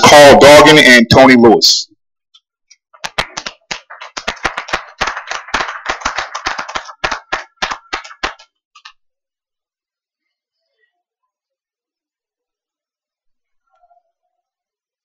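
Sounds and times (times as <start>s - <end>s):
crowd applauding: 3.0s - 8.5s.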